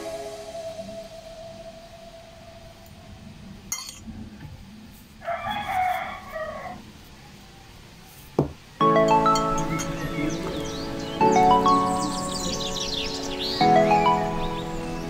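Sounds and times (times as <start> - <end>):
music: 0.0 - 2.9, 8.8 - 15.0
rooster crowing: 5.2 - 7.7.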